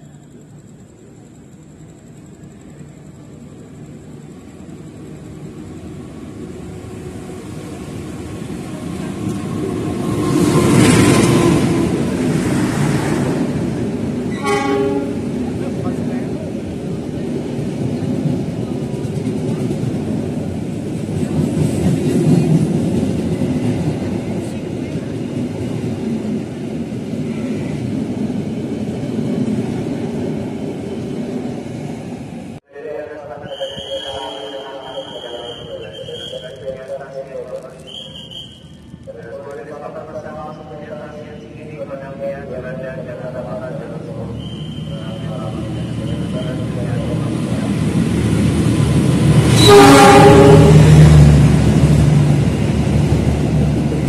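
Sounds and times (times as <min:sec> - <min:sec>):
train rumble: 0:00.0 - 0:54.0.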